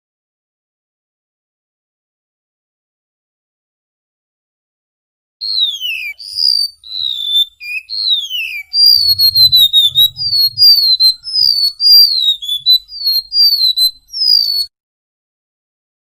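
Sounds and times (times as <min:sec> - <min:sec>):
bird singing high whistles: 0:05.4 - 0:14.7.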